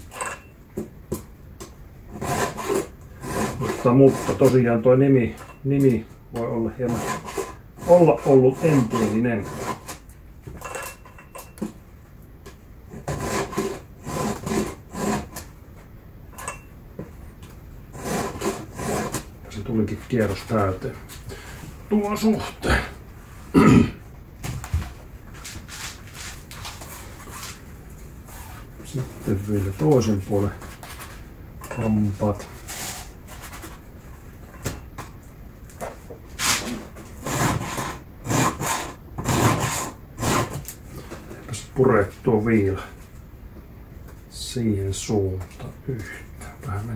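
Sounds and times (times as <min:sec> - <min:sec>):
file rasping on chainsaw chain: 0:06.9 - 0:10.0.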